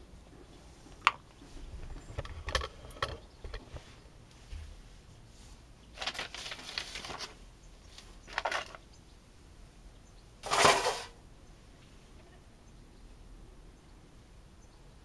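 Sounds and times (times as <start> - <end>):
foil bag crinkling: 6.0 - 7.4, 8.0 - 8.8.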